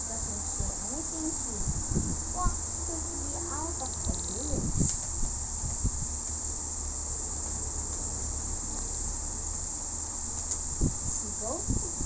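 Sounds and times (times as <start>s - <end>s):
high-pitched hiss: 0.0s - 7.4s.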